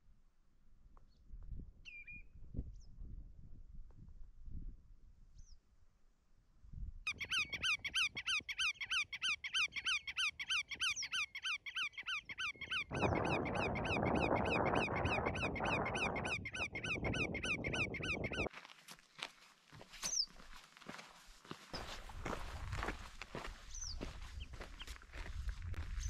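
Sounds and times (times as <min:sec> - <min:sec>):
bird chirping: 0:07.1 - 0:18.5, 0:23.7 - 0:24.9.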